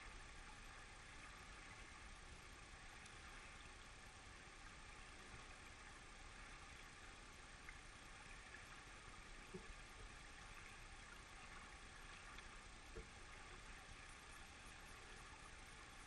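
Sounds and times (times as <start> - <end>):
faint steady hiss: 0.0 - 16.0.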